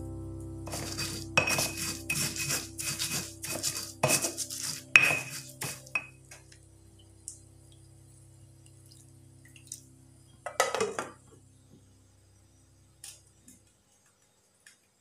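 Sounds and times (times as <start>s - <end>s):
stone pestle pounding in mortar: 0.7s - 6.1s.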